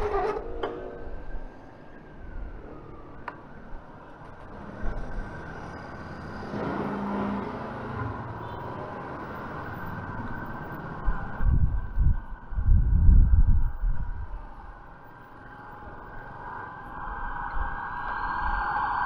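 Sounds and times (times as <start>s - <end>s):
street traffic noise: 0.0s - 19.0s.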